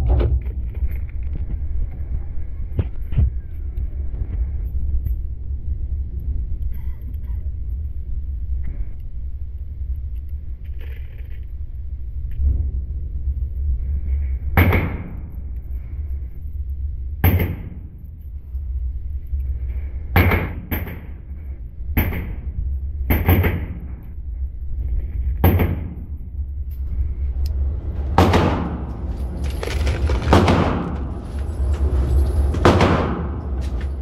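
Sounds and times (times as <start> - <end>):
steady low rumble: 0.0 - 34.0
gunshots echoing: 27.8 - 31.6, 32.5 - 33.8.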